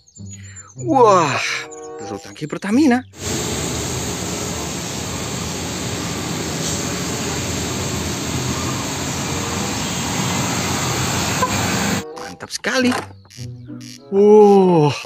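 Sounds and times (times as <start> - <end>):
truck engine driving past: 3.2 - 12.0
tyres hissing on wet road: 3.2 - 12.0.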